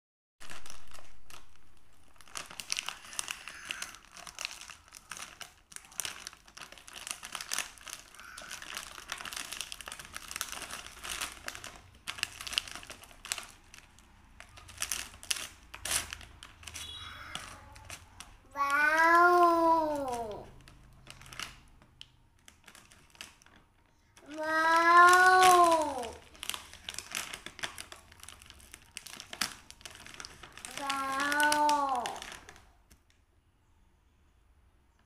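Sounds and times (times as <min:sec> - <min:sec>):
plastic wrapper crinkling: 0:00.4 - 0:33.2
person's voice: 0:18.5 - 0:20.5, 0:30.7 - 0:32.2.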